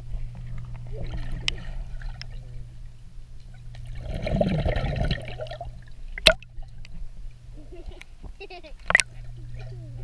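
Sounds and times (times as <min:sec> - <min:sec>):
underwater low hum: 0:00.0 - 0:10.0
underwater bubbling: 0:00.3 - 0:07.5.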